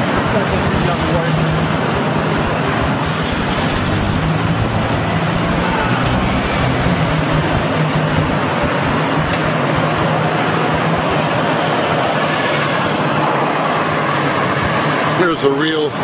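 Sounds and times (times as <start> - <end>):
busy street traffic: 0.0 - 16.0.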